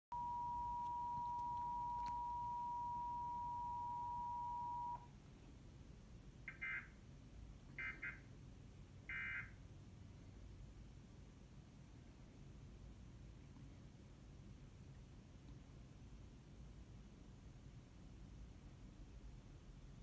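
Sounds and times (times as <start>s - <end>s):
steady two-tone beep: 0.1s - 5.0s.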